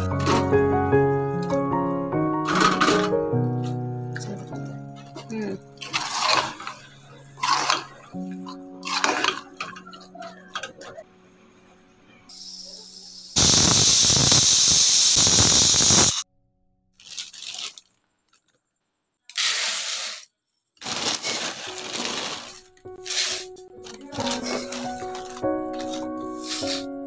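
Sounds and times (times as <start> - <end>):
pressure cooker whistling: 12.3 - 16.2.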